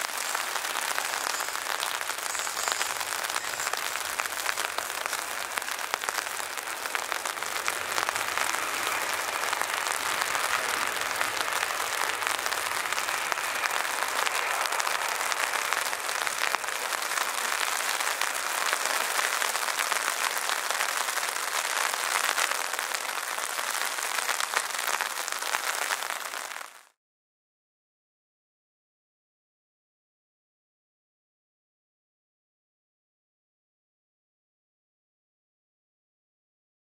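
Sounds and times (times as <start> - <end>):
heavy rain pattering: 0.0 - 27.0.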